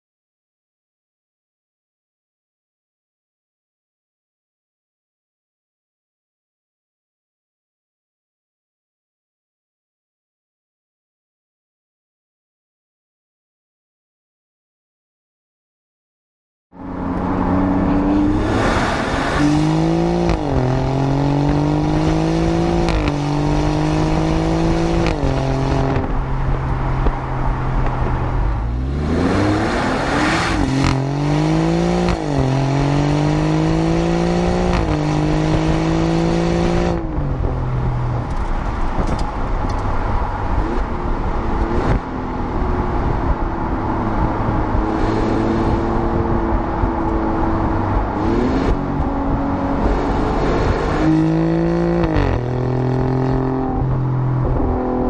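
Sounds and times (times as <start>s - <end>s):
car engine accelerating hard: 16.8s - 55.0s.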